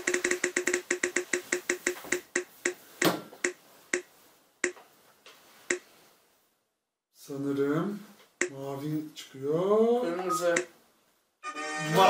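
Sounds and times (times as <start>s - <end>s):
spinning wheel app ticking: 0.0s - 2.8s.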